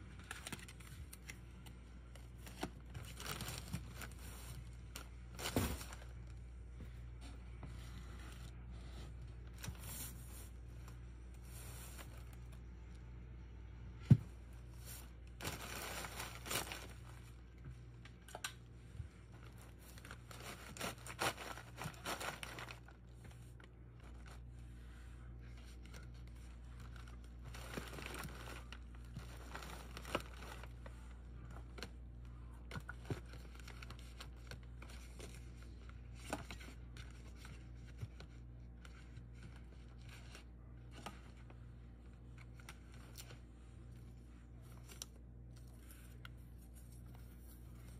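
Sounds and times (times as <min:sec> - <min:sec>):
plastic wrapping crinkling: 0:02.2 - 0:06.3, 0:14.8 - 0:17.4, 0:19.3 - 0:23.0, 0:25.7 - 0:30.9.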